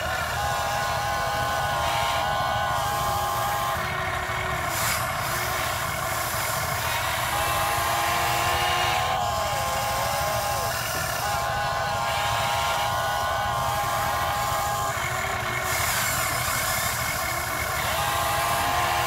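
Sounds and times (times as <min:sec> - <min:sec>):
electric motors whining: 0:00.0 - 0:19.0.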